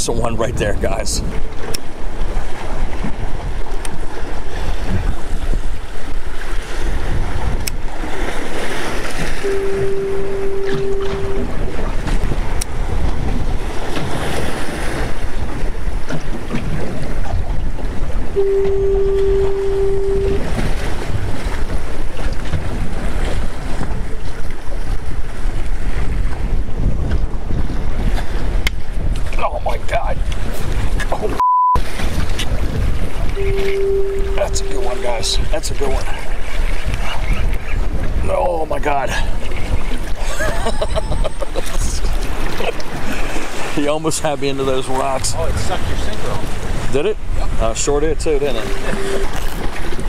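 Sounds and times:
water slapping boat: 0.0s - 50.0s
wind buffeting microphone: 0.0s - 50.0s
steady mid-pitched tone: 9.4s - 11.7s, 18.4s - 20.7s, 33.4s - 35.5s, 48.2s - 49.6s.

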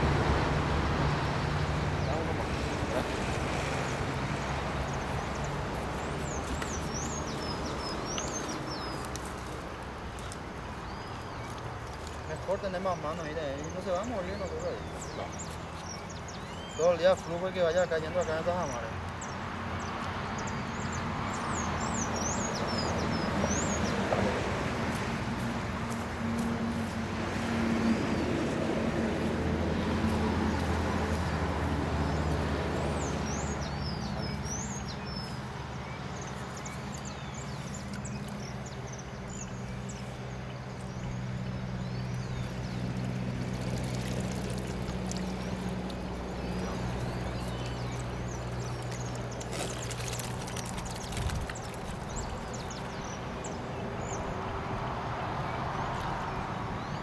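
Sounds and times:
small birds chirping: 2.0s - 25.0s, 29.2s - 57.0s
water splashing: 42.0s - 53.4s.

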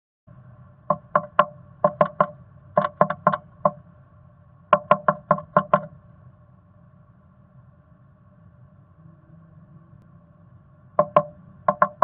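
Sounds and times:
steady hum: 0.3s - 12.0s
bird pecking at wood: 0.9s - 3.8s, 4.7s - 5.9s, 11.0s - 12.0s.

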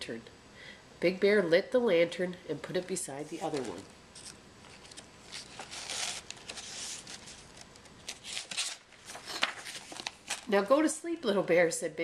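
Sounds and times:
paper rustling: 3.2s - 10.5s
book page clicks and crinkles: 3.3s - 10.5s.

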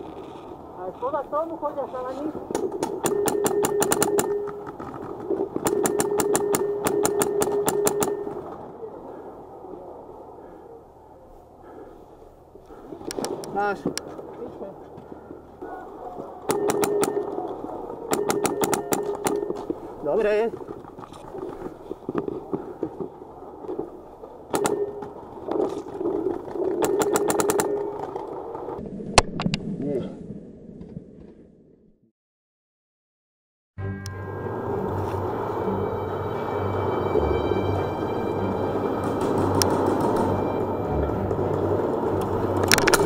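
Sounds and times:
paintball marker firing shots: 26.8s - 28.0s.

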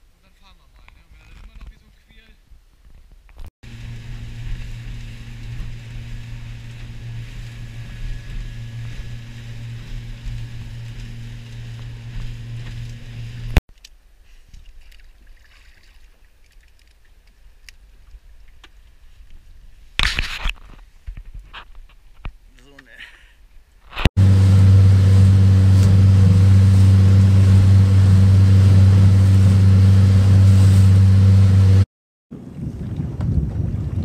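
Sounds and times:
outboard motor running: 3.6s - 13.6s, 24.2s - 31.9s
water rushing past hull: 3.6s - 13.6s, 24.2s - 34.0s
loud rush of noise: 24.2s - 31.8s.

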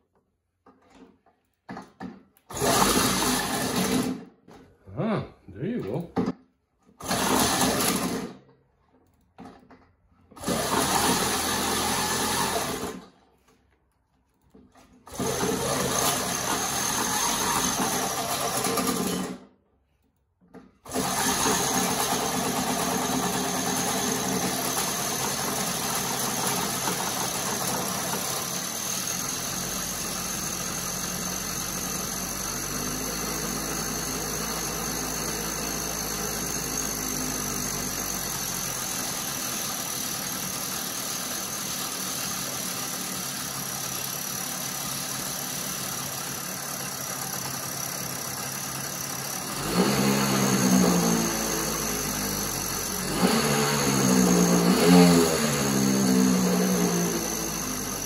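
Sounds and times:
two-stroke engine idling: 20.9s - 58.0s.

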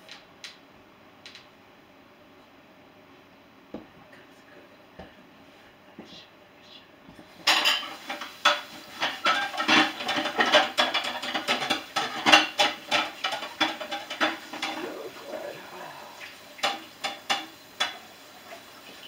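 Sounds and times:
dishes and cutlery clattering: 7.4s - 15.0s, 16.6s - 18.1s.

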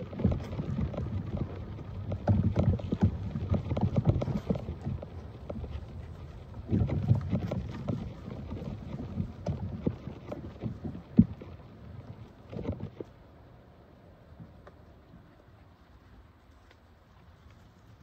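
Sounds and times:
wind rumble on microphone: 0.0s - 13.2s
small clicks and rustles: 0.0s - 13.3s, 14.4s - 18.0s.

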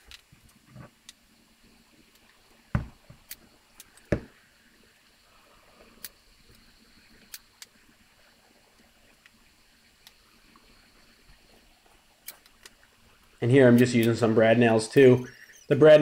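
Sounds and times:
light clicks: 13.7s - 14.2s.

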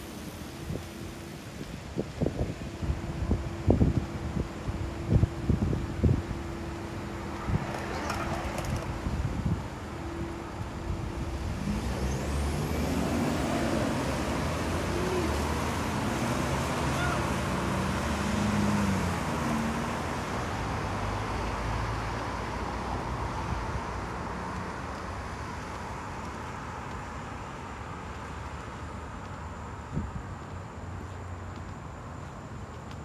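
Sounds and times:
vehicle passing: 6.0s - 28.0s.

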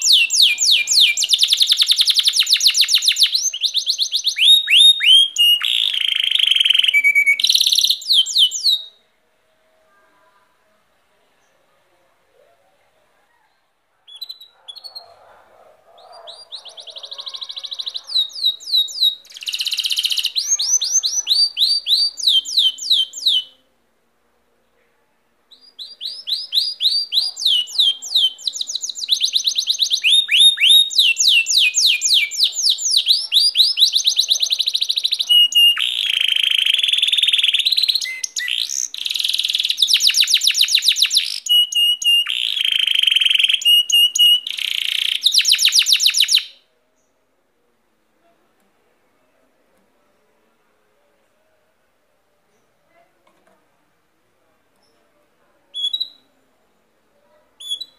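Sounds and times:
canary singing: 0.0s - 9.0s, 14.0s - 23.6s, 25.5s - 46.6s, 55.7s - 56.3s, 57.6s - 57.9s.

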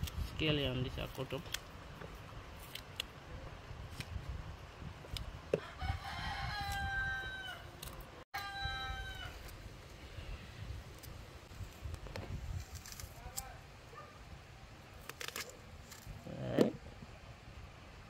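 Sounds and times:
rooster crowing: 5.6s - 7.7s, 8.4s - 9.4s.

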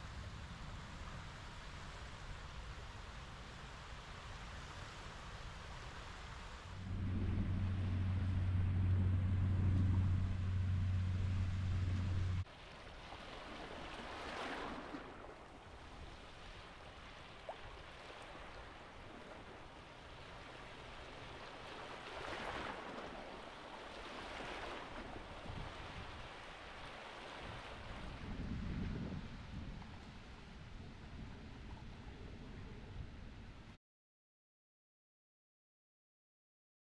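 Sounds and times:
small waves washing on shore: 0.0s - 33.5s
loud low rumble: 6.8s - 12.4s.

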